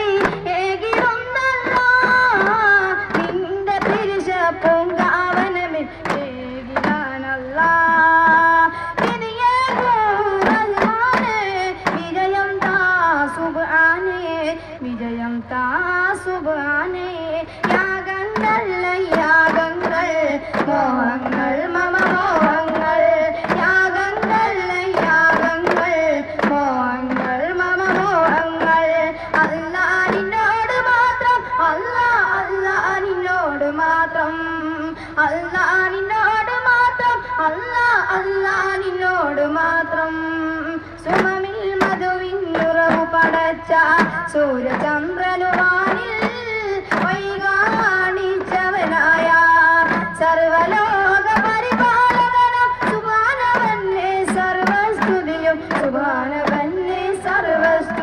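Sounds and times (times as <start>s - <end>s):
person singing devotional song: 0.0s - 58.0s
frame drum strikes: 0.1s - 12.9s, 17.6s - 30.9s, 41.1s - 58.0s.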